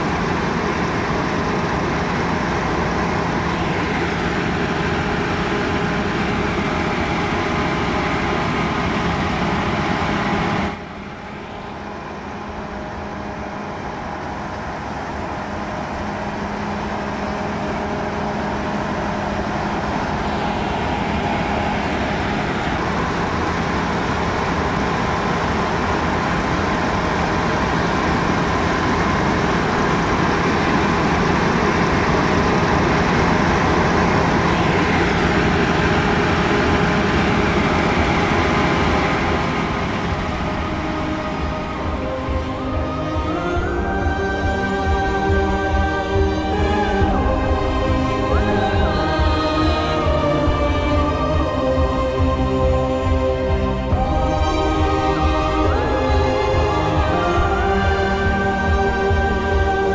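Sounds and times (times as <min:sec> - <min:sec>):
combine harvester drone: 0:00.0 - 0:59.9.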